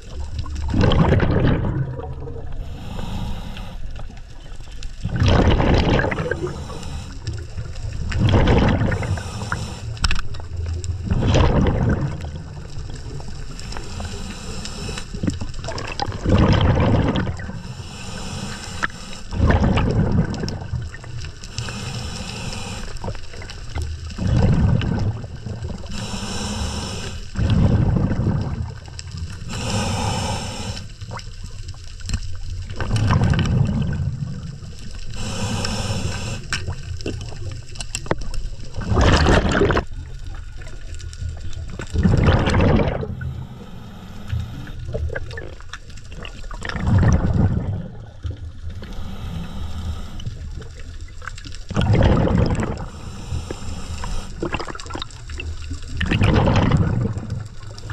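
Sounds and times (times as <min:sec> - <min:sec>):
bubbling exhale underwater: 0:00.0 - 0:31.6, 0:32.3 - 0:57.9
diver inhaling through regulator: 0:02.4 - 0:04.1, 0:05.3 - 0:07.6, 0:08.2 - 0:10.1, 0:13.6 - 0:15.5, 0:16.1 - 0:23.5, 0:24.2 - 0:31.2, 0:35.0 - 0:36.8, 0:42.0 - 0:45.0, 0:48.7 - 0:51.0, 0:51.8 - 0:55.0.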